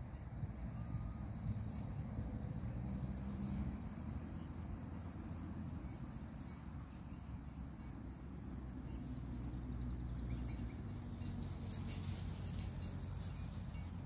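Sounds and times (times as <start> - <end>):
wind rumbling on microphone: 0.0 - 14.0
rustling in dry grass: 3.5 - 14.0.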